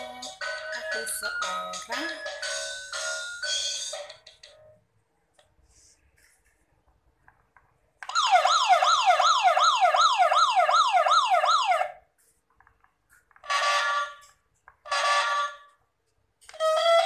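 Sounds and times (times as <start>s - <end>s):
electronic toy siren wailing: 8.1s - 12.0s, 13.5s - 15.8s.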